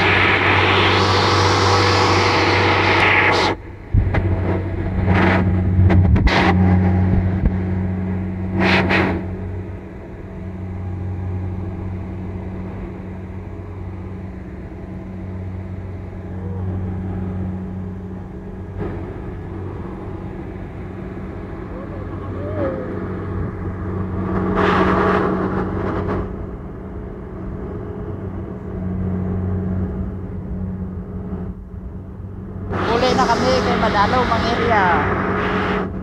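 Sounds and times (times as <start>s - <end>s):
loud rushing bursts: 0.0s - 9.7s
combine harvester engine hum: 0.0s - 36.0s.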